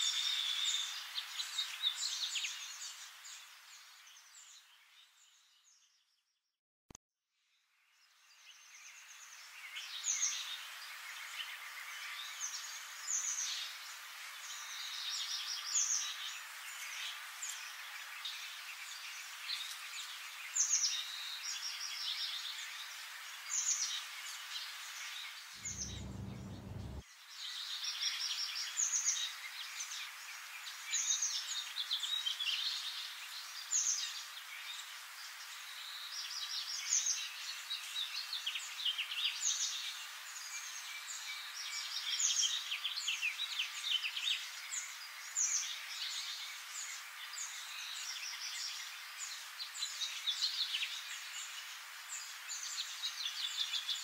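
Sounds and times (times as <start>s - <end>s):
birds chirping: 25.6s - 27.0s
steady hiss: 25.6s - 27.0s.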